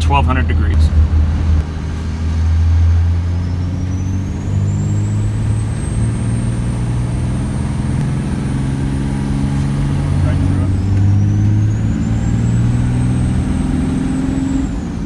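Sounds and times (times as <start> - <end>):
diesel engine drone: 0.0 - 15.0
turbo whistle: 3.2 - 7.2.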